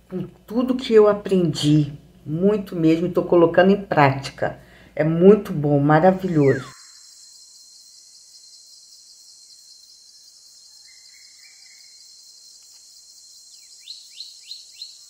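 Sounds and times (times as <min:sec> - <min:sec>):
downward-sliding bird chirps: 0:06.2 - 0:07.1
insects chorus: 0:06.2 - 0:15.0
faint bird call: 0:06.3 - 0:06.9.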